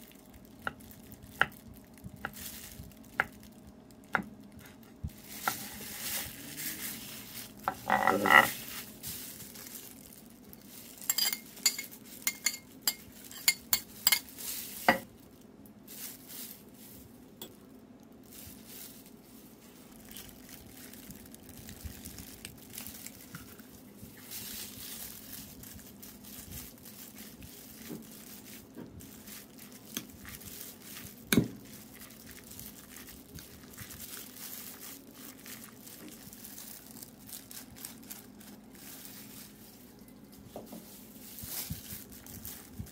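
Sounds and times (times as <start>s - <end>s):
ceramic bowl clinking: 11.1s - 14.3s
spoon stirring in bowl: 11.1s - 14.3s.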